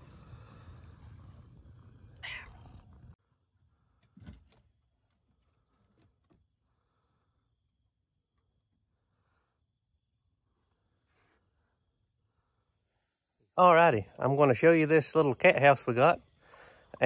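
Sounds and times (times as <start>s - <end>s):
outdoor background noise: 0.0s - 17.0s
cat meowing: 2.2s - 2.8s.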